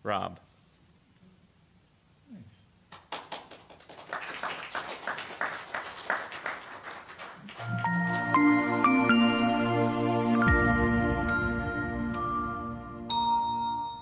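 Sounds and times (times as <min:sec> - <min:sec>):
crowd applauding: 0:02.9 - 0:09.5
jingle of chimes: 0:07.6 - 0:14.0.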